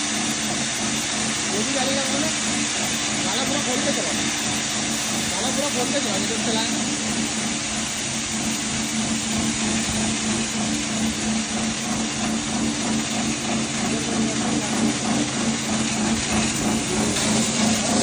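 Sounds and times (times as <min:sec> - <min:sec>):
feed grinder running: 0:00.0 - 0:18.0.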